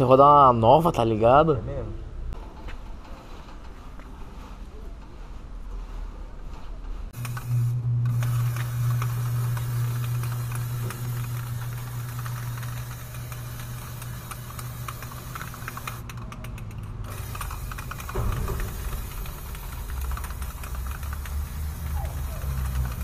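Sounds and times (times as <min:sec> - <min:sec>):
steady low hum: 0:04.7 - 0:23.0
spray can hissing: 0:07.2 - 0:16.0, 0:17.1 - 0:23.0
small clicks: 0:07.2 - 0:23.0.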